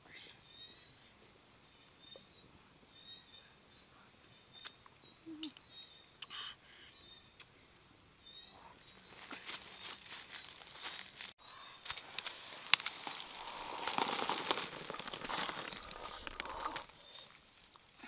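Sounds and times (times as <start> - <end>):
eggs rattling into bamboo basket: 12.7 - 16.9.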